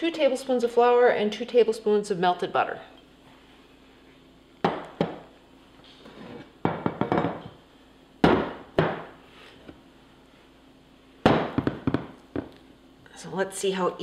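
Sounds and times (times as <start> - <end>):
glass dishes clinking on countertop: 6.7 - 7.5.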